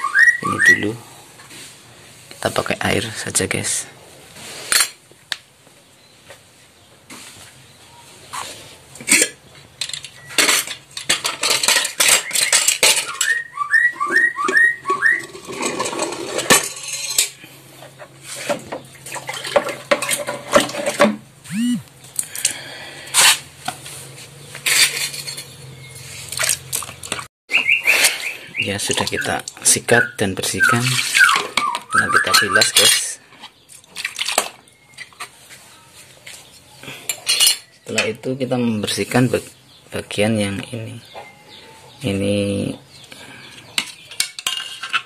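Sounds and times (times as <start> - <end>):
metal parts clattering: 9.0 - 13.4, 15.2 - 17.4, 24.6 - 25.5, 43.8 - 45.0
brush scrubbing metal parts in water: 26.0 - 27.3, 30.6 - 33.1.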